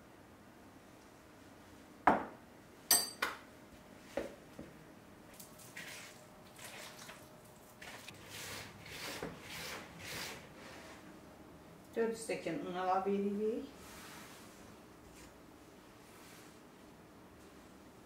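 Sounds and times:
metal spoon clinking on bowl: 2.9s - 3.3s.

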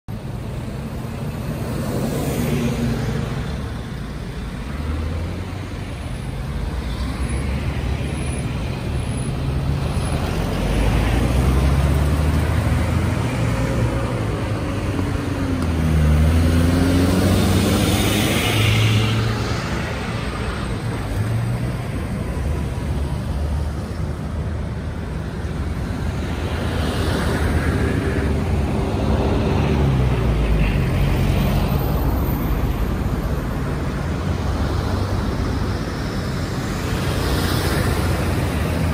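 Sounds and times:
car engines passing: 0.1s - 38.9s.

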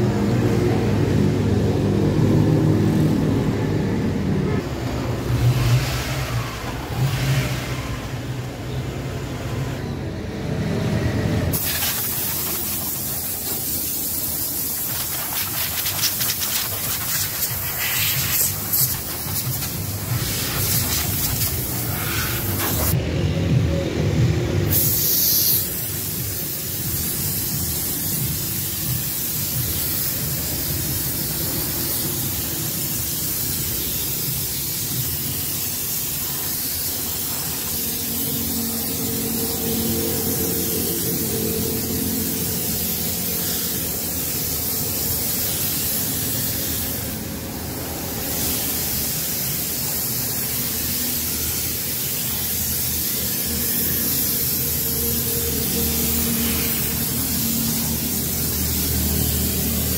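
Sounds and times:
spray gun hissing: 11.5s - 23.0s, 24.7s - 59.9s.

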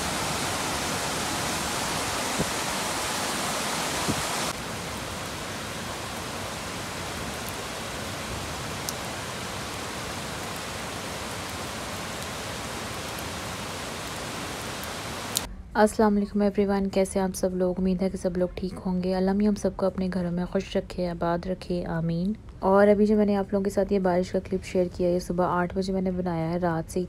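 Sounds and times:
heavy rain falling: 0.0s - 15.5s.

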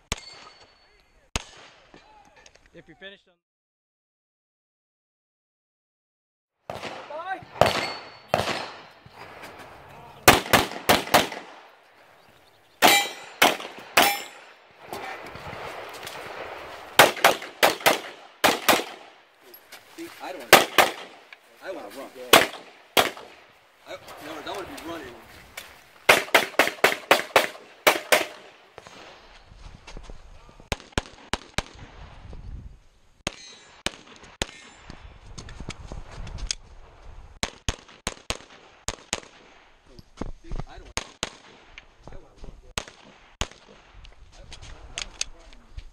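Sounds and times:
pistol gunshots: 6.7s - 9.4s, 10.2s - 11.8s, 12.8s - 14.6s, 15.6s - 19.2s, 20.5s - 21.3s, 22.2s - 23.5s, 26.1s - 29.0s, 30.7s - 31.8s, 37.4s - 39.6s, 41.0s - 41.8s, 42.8s - 43.9s.

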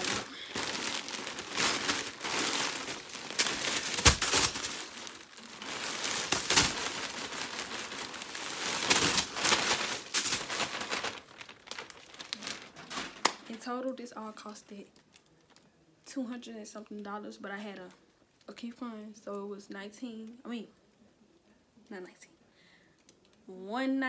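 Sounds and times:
thumps of contents dropping: 0.0s - 13.5s
plastic bag crinkling: 0.0s - 13.6s.

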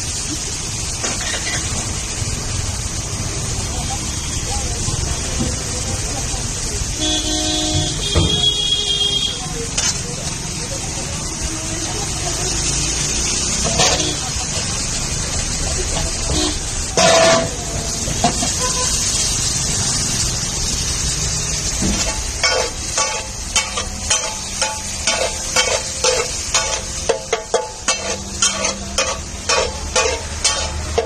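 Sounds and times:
vegetables sizzling in oil: 0.0s - 31.0s
metal spatula scraping griddle: 1.0s - 1.8s, 13.6s - 14.7s, 16.3s - 17.6s, 21.9s - 31.0s
loud noise: 6.4s - 31.0s.

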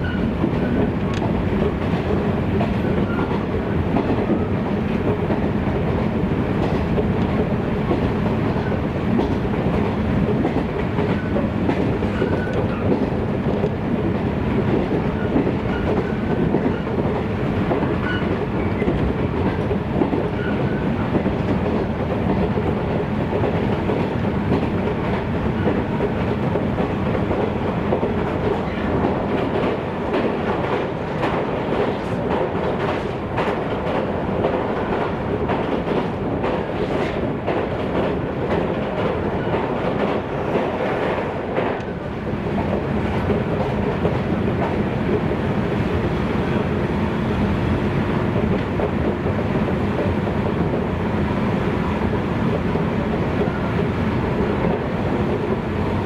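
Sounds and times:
train wheels rumbling on rails: 0.0s - 56.0s.

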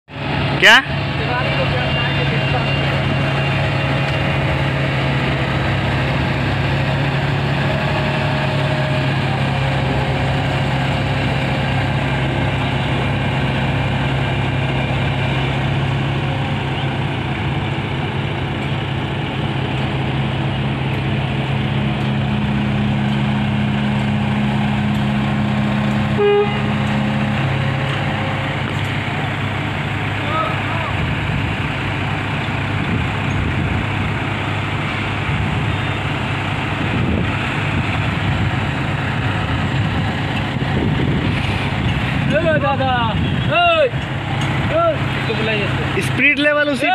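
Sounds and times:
diesel machinery running: 0.1s - 46.9s
higher engine note: 0.2s - 46.9s
short horn toot: 26.1s - 27.2s.

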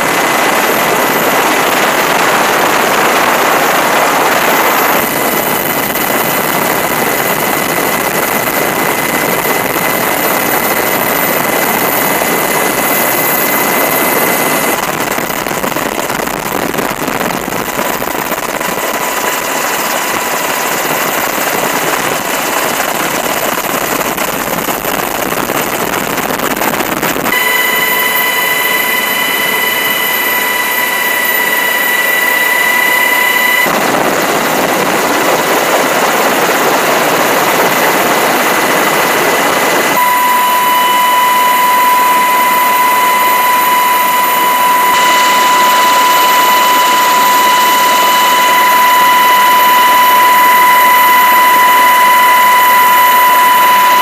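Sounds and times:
helicopter turbine and rotor noise: 0.0s - 54.0s
high turbine whine: 0.0s - 54.0s.

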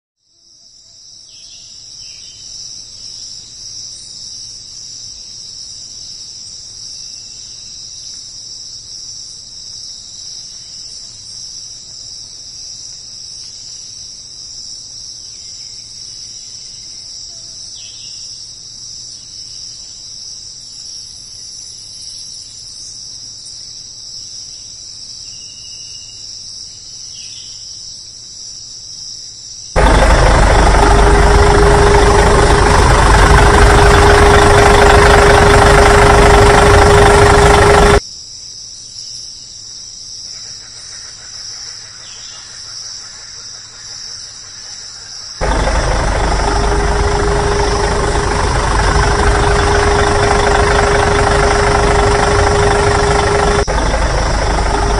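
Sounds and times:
faint short insect calls: 0.2s - 29.7s, 38.1s - 45.4s.

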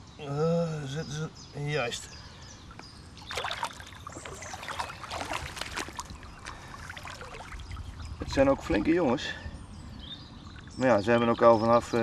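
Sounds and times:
pond water splashing and dripping: 2.7s - 9.2s.

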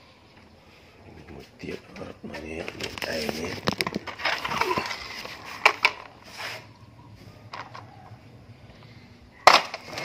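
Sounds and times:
plastic clatter and sack rustle: 2.6s - 6.2s.

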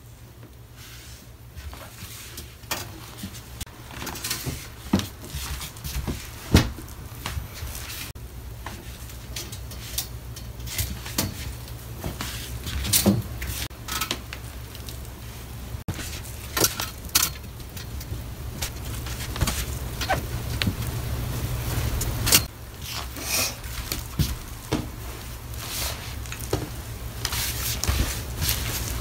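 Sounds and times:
low hum: 14.6s - 22.8s
fabric rustling: 15.9s - 26.4s.

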